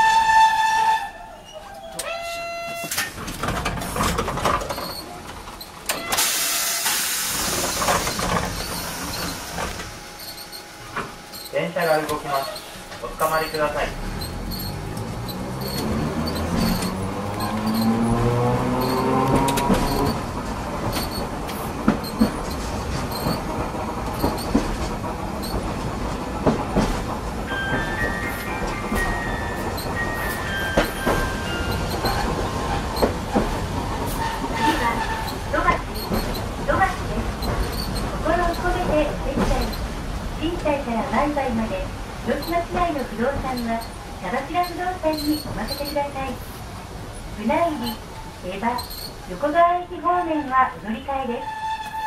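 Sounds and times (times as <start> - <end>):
streetcar low rumble: 0.0 - 52.0
wheels clacking over rail joints: 2.0 - 6.3, 10.9 - 41.3
loud burst of air release: 6.1 - 8.0
compressed air hissing: 6.2 - 7.9.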